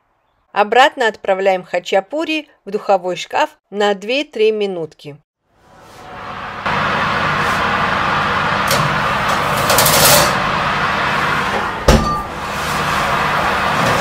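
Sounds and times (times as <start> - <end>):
metal tools scraping oven rack: 8.7 - 10.4.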